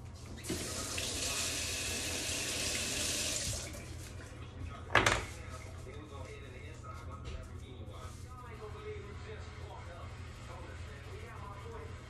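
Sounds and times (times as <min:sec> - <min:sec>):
faucet running into sink: 0:00.4 - 0:03.9.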